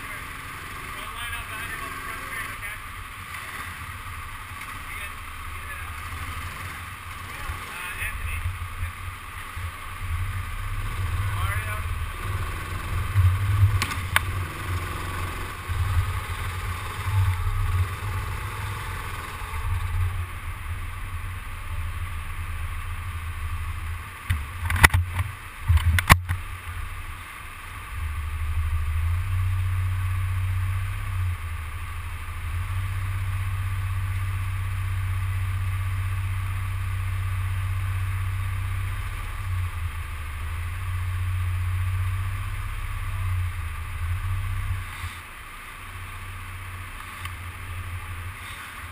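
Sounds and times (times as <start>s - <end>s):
go-kart engine rumble: 0.0s - 48.9s.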